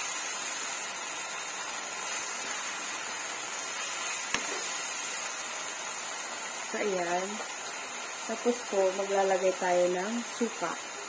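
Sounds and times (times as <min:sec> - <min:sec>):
paste sizzling in a wok: 0:00.0 - 0:11.0
spatula striking pan: 0:04.3 - 0:04.7.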